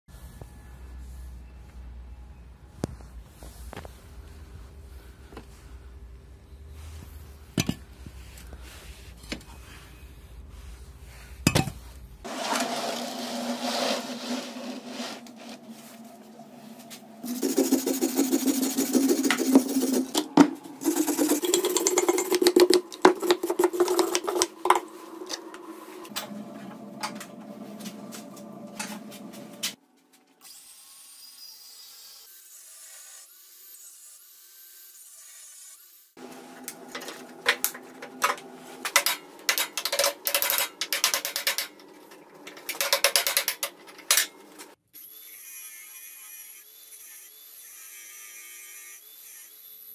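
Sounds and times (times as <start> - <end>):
angle grinder grinding steel: 12.3 - 29.7.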